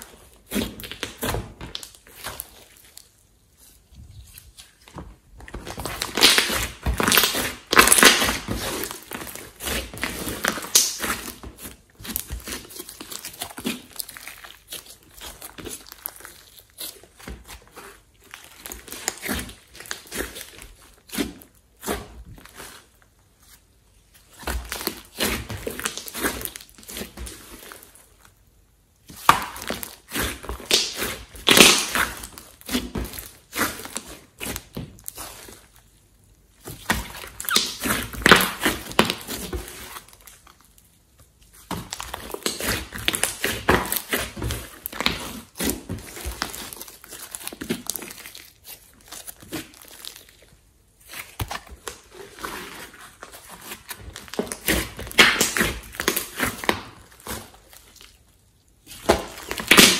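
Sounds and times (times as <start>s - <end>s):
slime squishing and popping: 0.4s - 3.2s, 5.5s - 17.6s, 29.2s - 35.6s, 36.6s - 40.7s, 53.4s - 58.2s, 58.8s - 59.9s.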